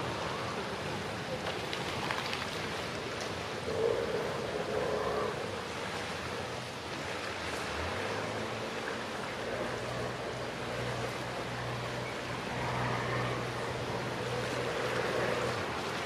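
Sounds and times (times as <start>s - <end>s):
boat engine hum: 0.0s - 16.0s
water washing along hull: 0.0s - 16.0s.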